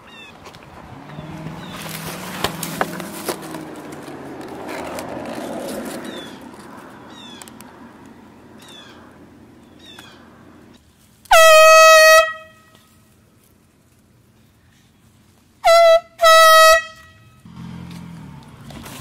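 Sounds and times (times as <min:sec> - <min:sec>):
rustling in foliage: 0:00.0 - 0:07.8, 0:09.7 - 0:15.6, 0:17.6 - 0:19.0
air horn blast: 0:11.3 - 0:12.9, 0:15.6 - 0:17.5.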